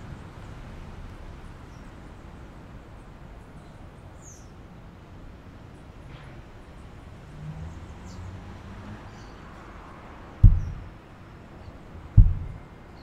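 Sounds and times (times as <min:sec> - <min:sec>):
low rumble: 0:10.4 - 0:11.0, 0:12.2 - 0:12.7.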